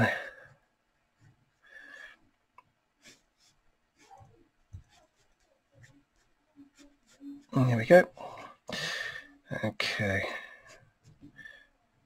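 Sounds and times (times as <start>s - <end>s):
pencil scratching on paper: 3.0s - 8.2s, 10.2s - 11.6s.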